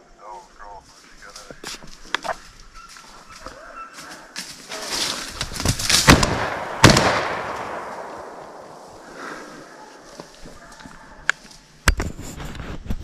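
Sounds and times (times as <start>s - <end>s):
rustling noise: 0.7s - 6.2s, 8.2s - 13.0s
shotgun shots echoing: 6.0s - 9.0s.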